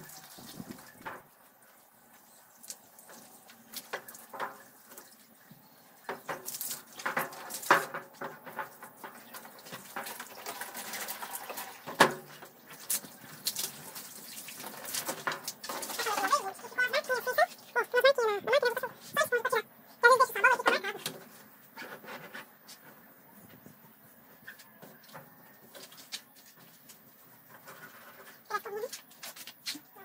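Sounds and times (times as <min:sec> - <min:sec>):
hose water splashing: 0:00.0 - 0:22.9.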